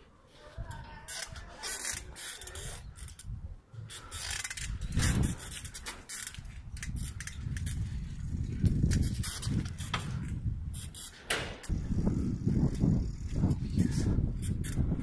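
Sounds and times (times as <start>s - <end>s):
wind and road noise rumble: 0.6s - 15.0s
bicycle camera rattling: 0.7s - 15.0s.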